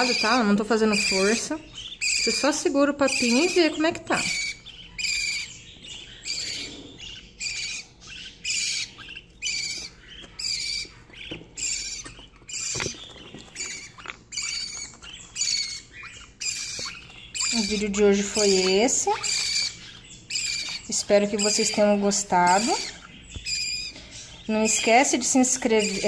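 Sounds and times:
budgerigar chicks chirping: 0.0s - 26.0s.

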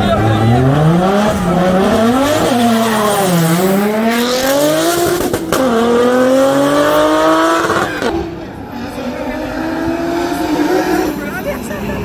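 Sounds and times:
racing cars accelerating: 0.0s - 12.0s.

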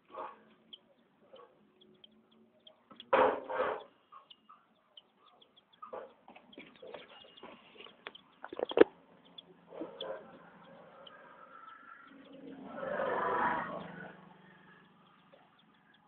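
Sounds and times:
chickens calling softly: 0.0s - 16.0s
sharp knock: 3.1s - 3.8s.

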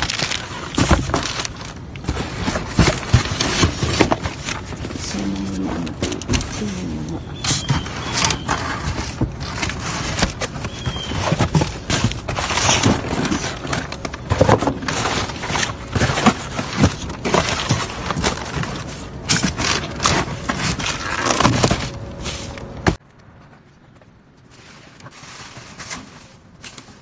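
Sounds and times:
cardboard boxes and bags rummaged: 0.0s - 23.0s, 24.4s - 27.0s.

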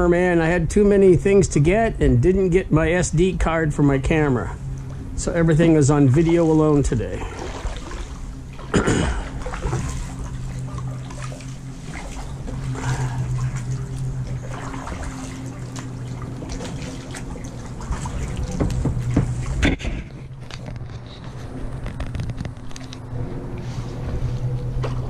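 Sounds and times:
faint low hum: 0.0s - 25.0s
kayak paddle strokes in water: 5.9s - 25.0s
water drips and splashes: 6.1s - 19.6s.

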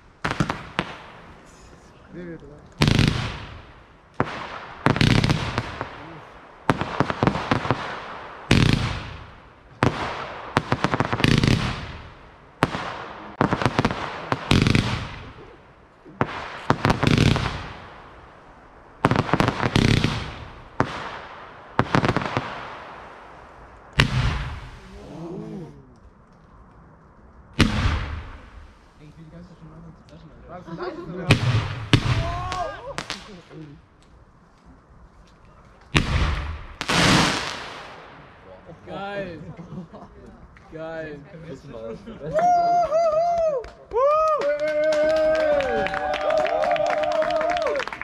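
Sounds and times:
fireworks banging: 0.0s - 25.1s, 26.0s - 35.0s, 35.8s - 39.2s
fireworks crackling: 0.0s - 48.0s.

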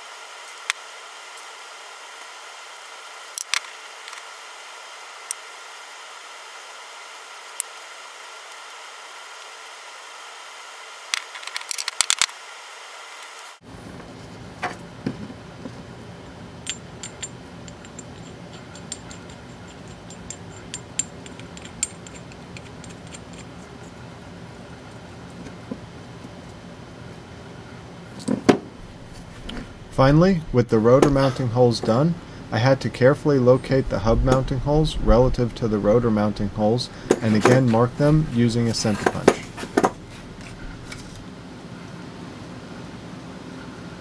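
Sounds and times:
steady workshop hum: 0.0s - 44.0s
metal bolt clicking and clinking: 16.6s - 23.9s.

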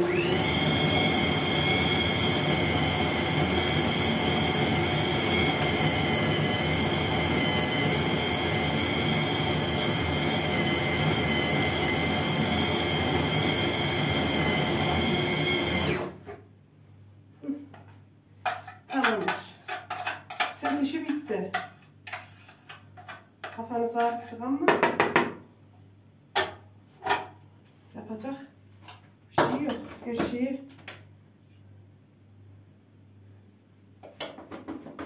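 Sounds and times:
electric food chopper whining: 0.0s - 16.2s.

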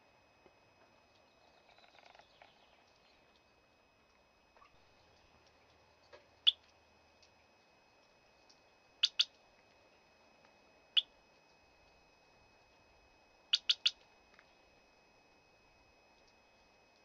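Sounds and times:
high-pitched alarm beeps: 9.0s - 9.3s, 13.5s - 14.0s.

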